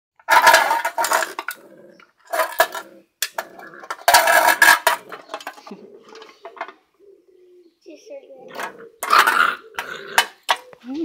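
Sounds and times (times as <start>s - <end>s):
can clattering on brick paving: 0.2s - 1.6s, 2.2s - 6.7s.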